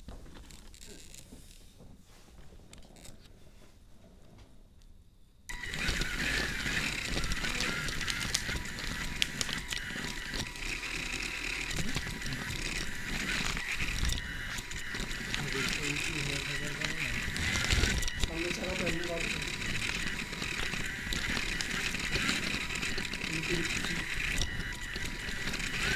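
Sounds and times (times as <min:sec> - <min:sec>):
robot motors whining: 0:00.3 - 0:01.6, 0:05.5 - 0:25.9
rattling and clicking: 0:05.5 - 0:25.9.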